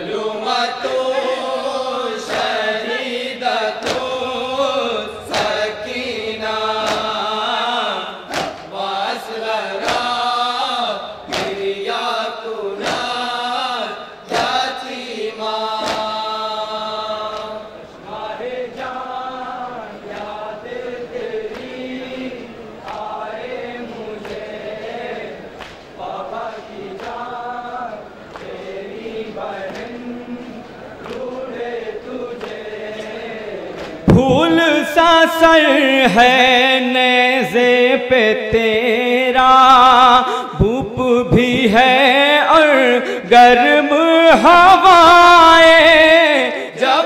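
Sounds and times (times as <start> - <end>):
men chanting in chorus: 0.0 - 47.0
chest-beating slaps: 3.8 - 4.2, 5.3 - 6.0, 6.8 - 7.3, 8.3 - 8.8, 9.8 - 10.2, 11.3 - 11.7, 12.8 - 13.2, 14.3 - 14.7, 15.8 - 16.2.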